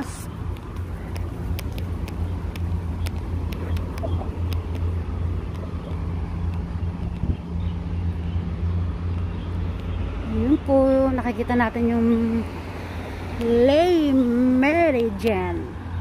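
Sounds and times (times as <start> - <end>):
footsteps on paved walkway: 0.0 - 8.4
road traffic rumble: 0.0 - 16.0.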